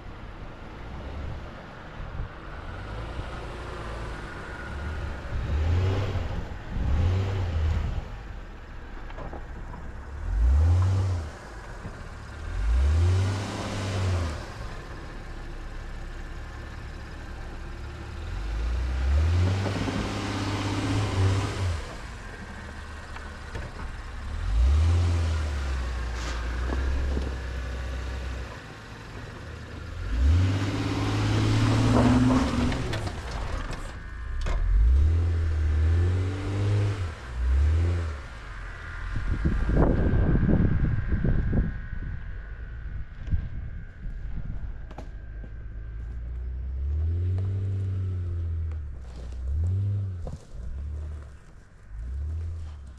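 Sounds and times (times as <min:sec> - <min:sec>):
suv engine revving: 0:02.6 - 0:08.3, 0:10.1 - 0:41.6.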